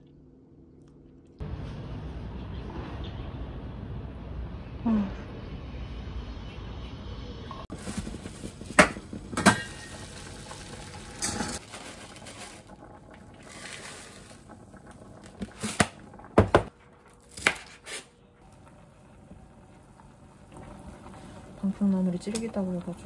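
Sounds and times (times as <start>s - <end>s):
water boiling: 7.7s - 23.0s
pots clanking on hob: 7.8s - 10.4s, 11.0s - 11.7s.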